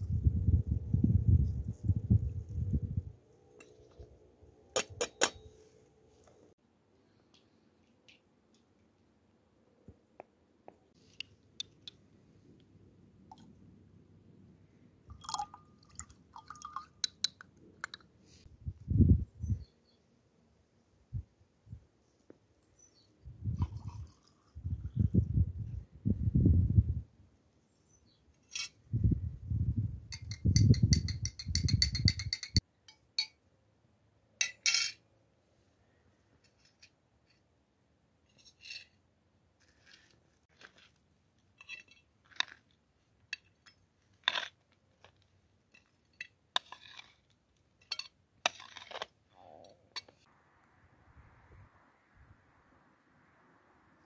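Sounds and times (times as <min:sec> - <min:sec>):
rustling: 0:39.6 - 0:42.8.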